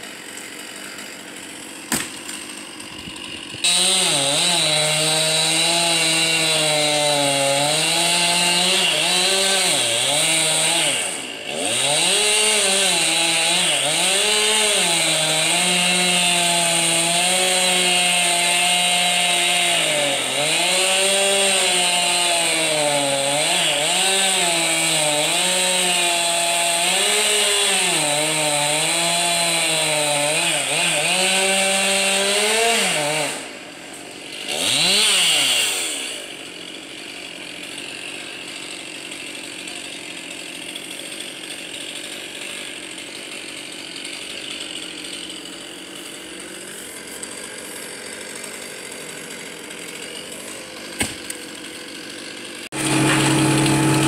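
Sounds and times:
chainsaw cutting through wood: 0:00.0 - 0:54.0.

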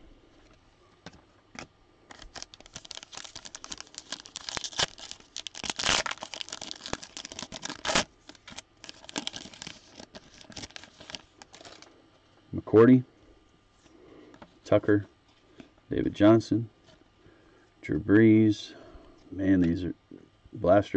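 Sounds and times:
foil wrapper crinkling and ripping: 0:01.6 - 0:11.9.

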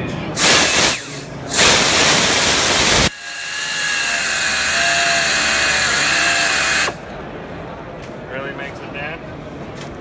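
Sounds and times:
exhaust air rushing: 0:00.4 - 0:03.1
air saw running: 0:00.4 - 0:07.0
saw blade cutting metal tube: 0:00.4 - 0:07.0.

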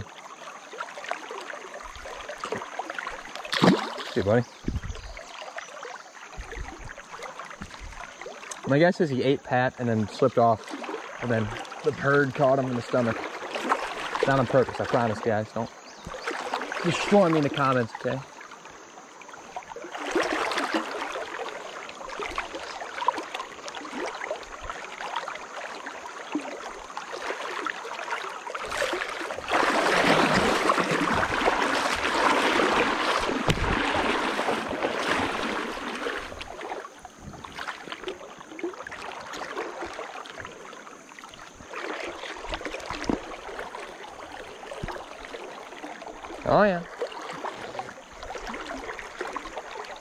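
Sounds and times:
small splashes and knocks: 0:00.0 - 0:08.8, 0:10.2 - 0:18.6, 0:19.3 - 0:50.0
river water rushing: 0:16.2 - 0:18.7, 0:19.4 - 0:50.0.

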